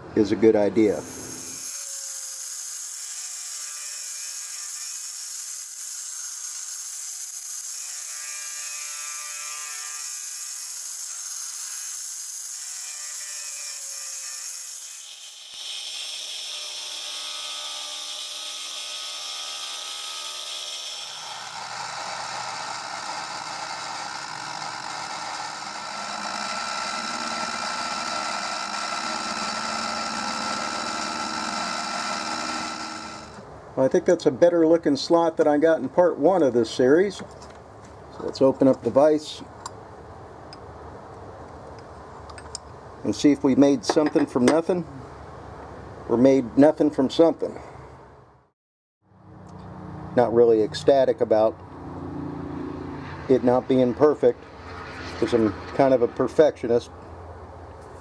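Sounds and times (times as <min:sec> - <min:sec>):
mini mill cutting metal: 0:00.9 - 0:33.4.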